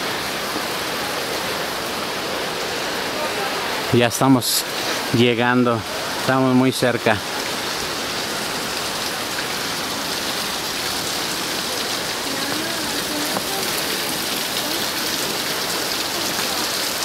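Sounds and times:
water splashing on stones: 0:08.6 - 0:17.0.

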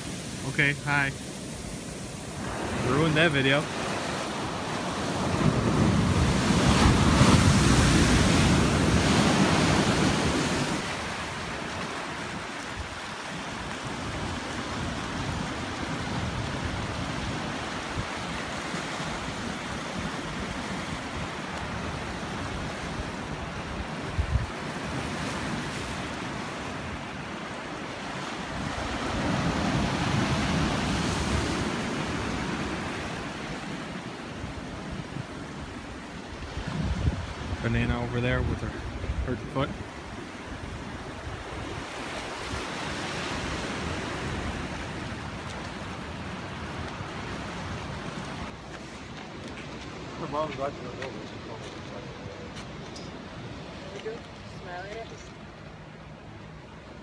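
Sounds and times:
ocean waves washing over rocks: 0:00.0 - 0:57.0
wind rumbling on microphone: 0:19.4 - 0:25.6, 0:34.4 - 0:48.6.

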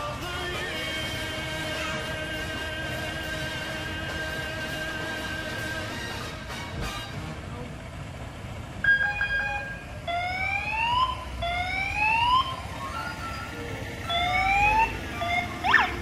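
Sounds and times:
electronic siren whooping: 0:08.8 - 0:16.0.

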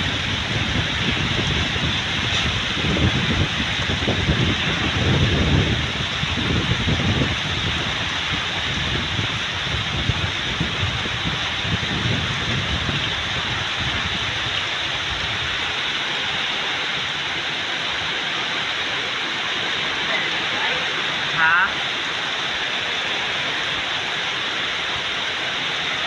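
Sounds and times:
heavy rain pouring on trees: 0:00.0 - 0:26.0
wind gusts on microphone: 0:00.0 - 0:26.0.

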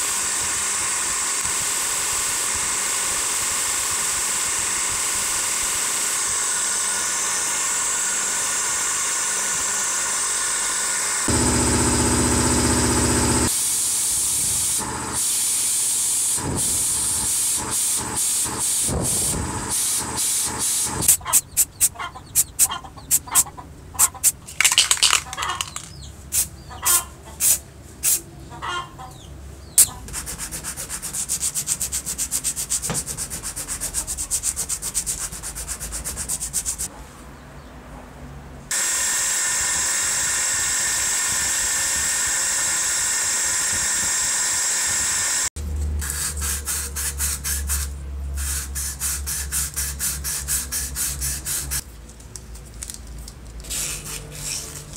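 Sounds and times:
buffing wheel spinning: 0:00.0 - 0:15.3
bench grinder with wire brush: 0:00.0 - 0:21.5, 0:38.7 - 0:47.7, 0:48.6 - 0:51.8, 0:53.6 - 0:54.9
hissing spray bursts: 0:13.4 - 0:23.4, 0:46.0 - 0:51.8.

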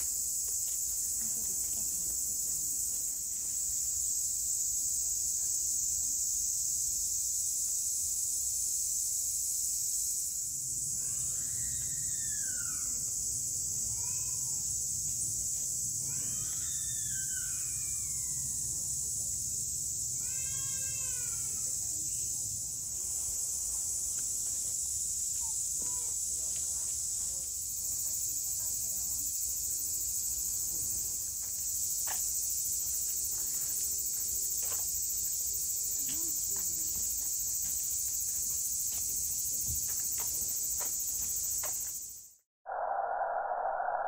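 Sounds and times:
insects droning: 0:00.0 - 0:44.0.

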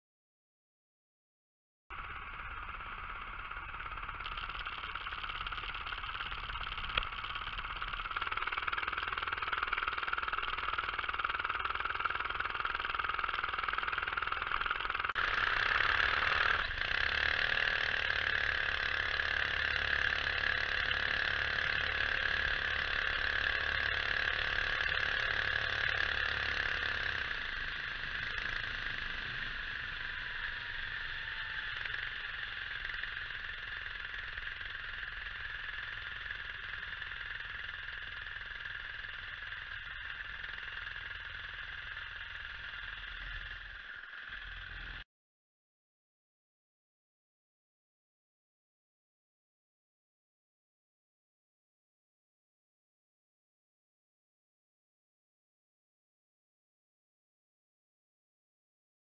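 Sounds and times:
small engine running: 0:01.9 - 0:45.1.

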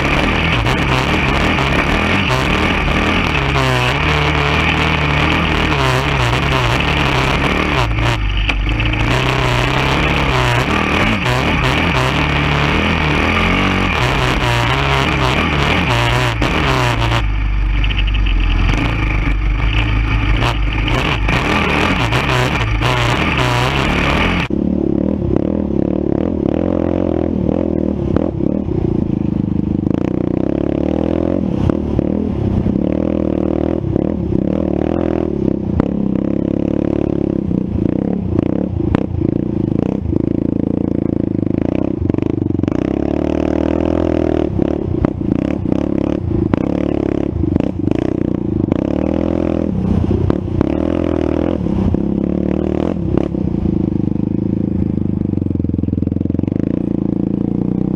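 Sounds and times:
machine rattling over bumps: 0:00.0 - 0:24.5
atv engine revving: 0:00.0 - 0:57.9.

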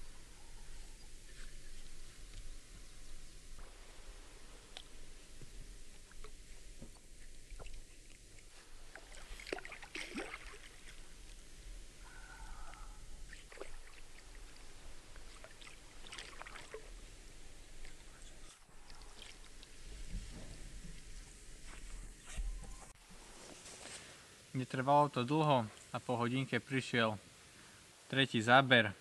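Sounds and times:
fish splashing at water surface: 0:08.8 - 0:11.0, 0:13.3 - 0:17.0.

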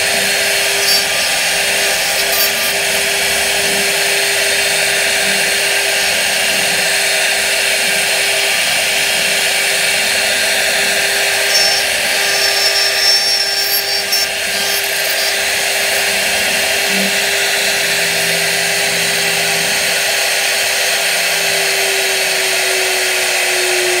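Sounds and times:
bits cutting wood hiss: 0:00.0 - 0:03.1, 0:11.3 - 0:16.3
router spindle whine: 0:00.0 - 0:24.0.

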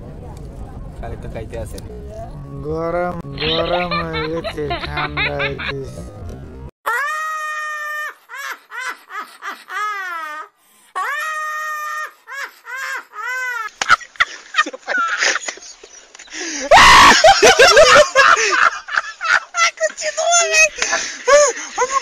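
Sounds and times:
voices: 0:00.2 - 0:06.4
elderly woman laughing loudly: 0:03.4 - 0:05.8, 0:07.9 - 0:15.8, 0:16.6 - 0:22.0.

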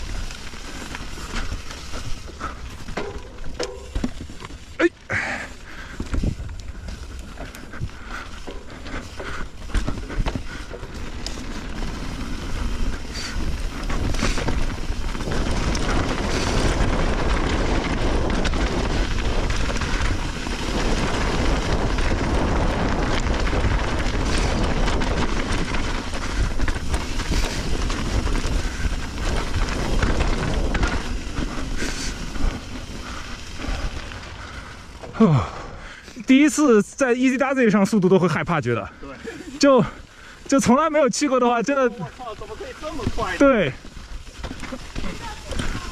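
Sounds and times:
bike tyre noise on dirt: 0:00.0 - 0:45.9
bike clicks and knocks: 0:00.1 - 0:04.8, 0:05.6 - 0:34.3
wind rushing over microphone: 0:11.6 - 0:33.0.

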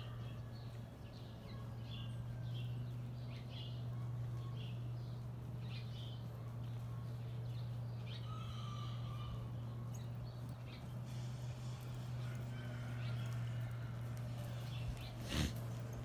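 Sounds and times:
bird calls: 0:00.0 - 0:16.0
low hum: 0:00.0 - 0:16.0
horse hoofbeats on dirt: 0:09.1 - 0:16.0.

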